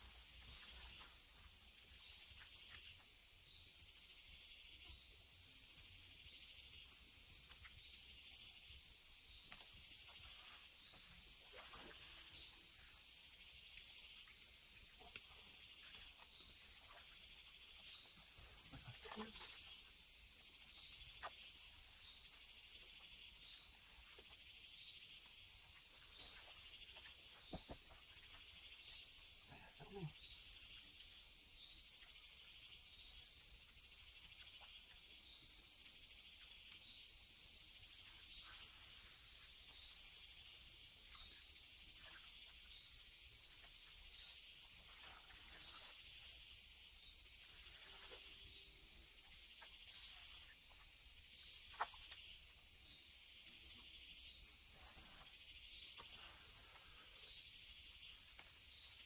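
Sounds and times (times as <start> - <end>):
faint ticks: 9.4 - 10.2, 33.5 - 37.0, 58.1 - 58.7.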